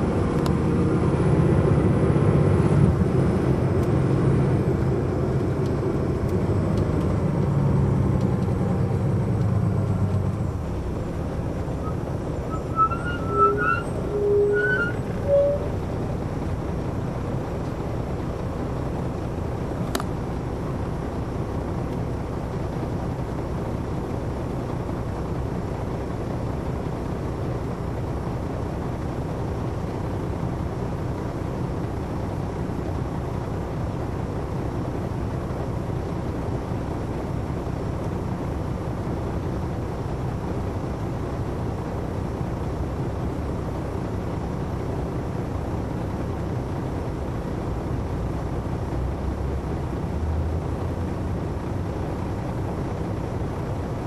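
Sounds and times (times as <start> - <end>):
diesel bus engine running: 0.0 - 54.0.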